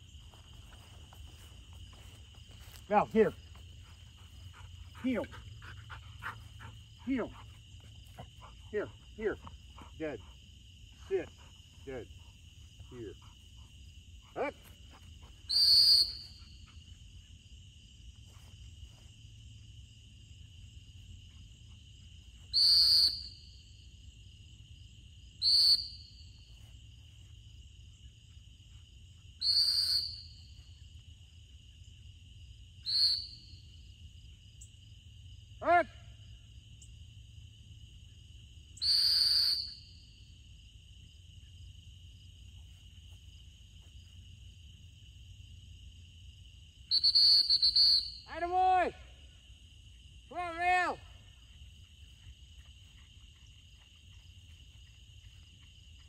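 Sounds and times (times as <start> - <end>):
crickets chirring: 0.0 - 56.0
dog whistle blasts: 15.5 - 16.4, 22.5 - 23.4, 25.4 - 26.0, 29.4 - 30.3, 32.8 - 33.5, 38.8 - 39.9, 46.9 - 48.3.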